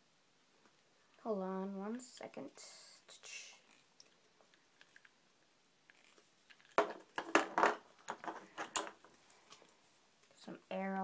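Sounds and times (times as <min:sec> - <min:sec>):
plastic parts clicking: 0:05.9 - 0:09.7.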